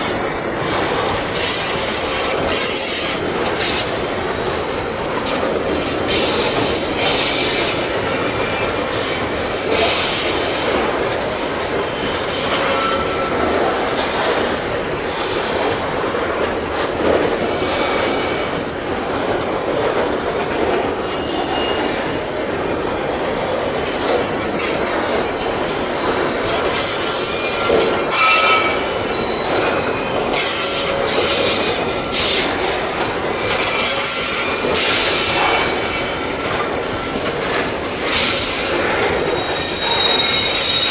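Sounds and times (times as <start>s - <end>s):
rumble of wheels on rail: 0.0s - 40.9s
wheels squealing and hissing: 38.1s - 40.9s.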